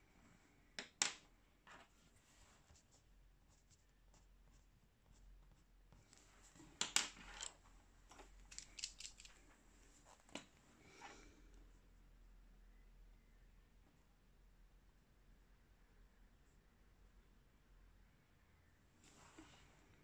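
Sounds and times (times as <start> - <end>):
pencil clicks: 8.4 - 9.4.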